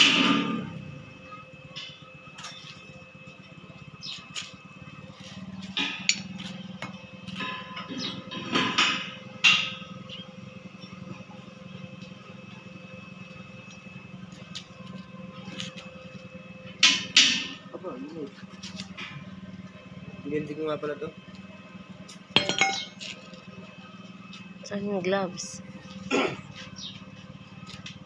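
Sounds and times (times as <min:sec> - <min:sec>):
low machine hum: 0:00.0 - 0:28.0
metal knocks on steel pipe: 0:22.4 - 0:23.0.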